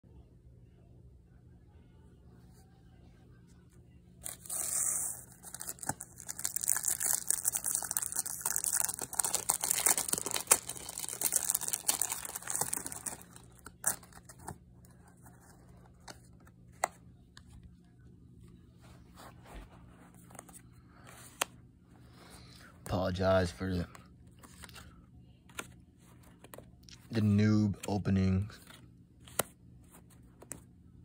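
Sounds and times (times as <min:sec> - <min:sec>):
foil pack crinkling: 0:04.2 - 0:14.5.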